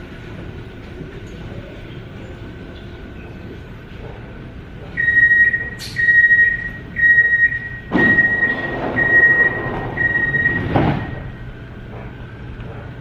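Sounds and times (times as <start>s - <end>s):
train doors shutting with thud: 3.7s - 13.0s
high repeating warning beep: 5.0s - 11.4s.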